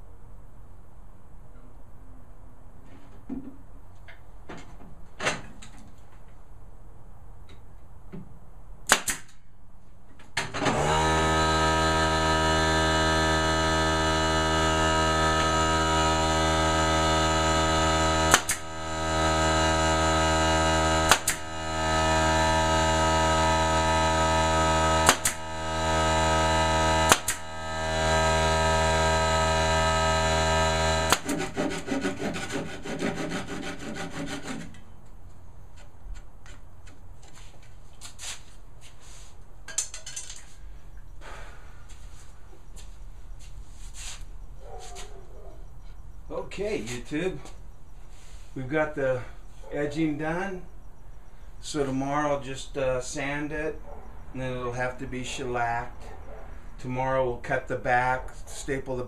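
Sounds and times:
nail gun firing: 8.8 - 9.4, 16.5 - 28.5, 30.3 - 32.8
air compressor motor humming: 10.6 - 31.8.

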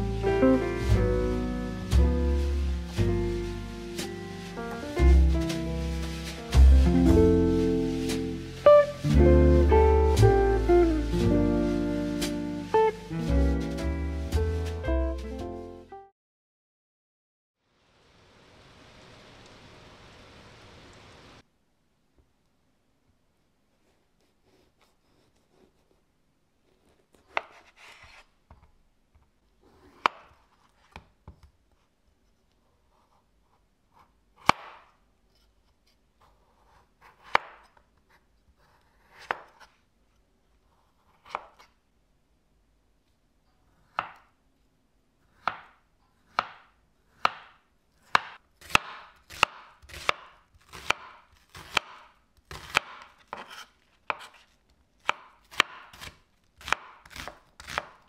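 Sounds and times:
knife cutting on wooden board: 26.8 - 28.3, 36.2 - 39.8, 40.9 - 41.7, 48.0 - 58.0.

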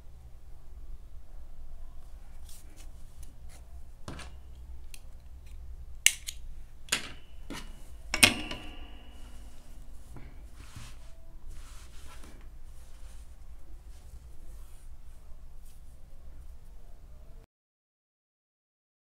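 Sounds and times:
metallic clink: 6.9 - 10.0.

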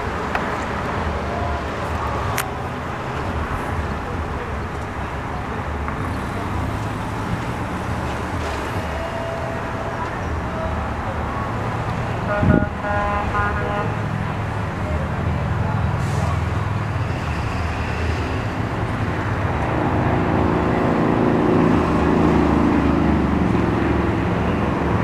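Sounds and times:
truck and car engines rumbling: 0.0 - 25.0.

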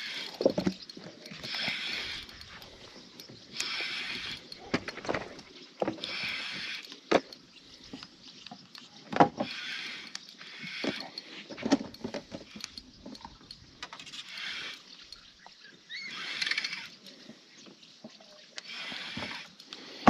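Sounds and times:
fishing reel gear whir: 0.0 - 17.2, 18.6 - 20.0.

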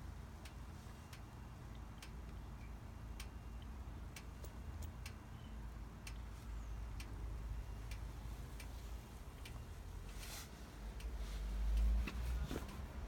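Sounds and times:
hot engine metal ticking: 0.0 - 10.2.

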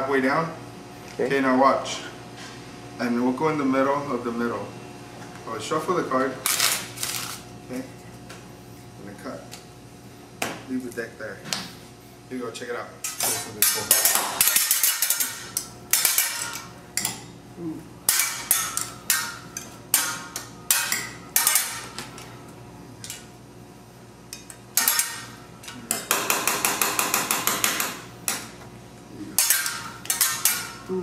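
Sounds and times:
metal spatulas clanging on griddle: 13.0 - 17.2, 18.1 - 22.0, 24.3 - 28.5, 29.4 - 30.8.

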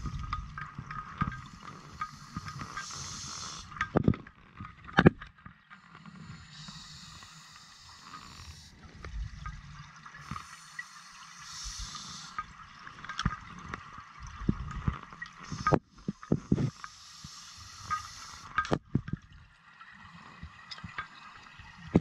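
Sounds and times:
regulator hissing inhales: 1.4 - 3.8, 6.1 - 8.8, 10.2 - 12.4, 15.4 - 18.6.

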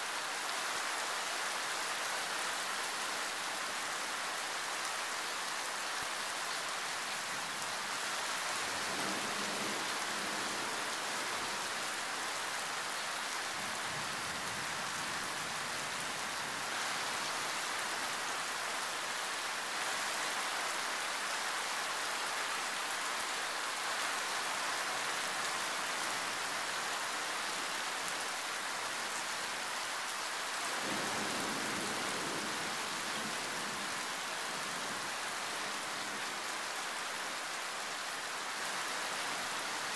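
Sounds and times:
heavy rain falling: 21.9 - 39.9.

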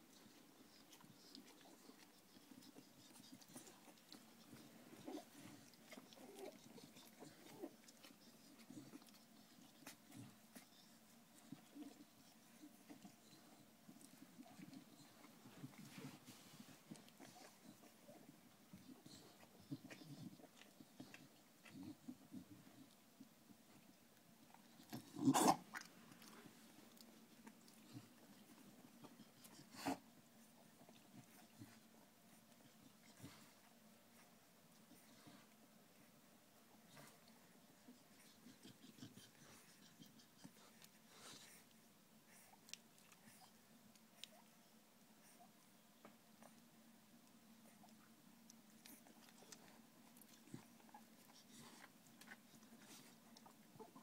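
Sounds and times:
rustling on a blanket: 0.0 - 25.0
puppies squeaking and snuffling: 0.0 - 54.0.

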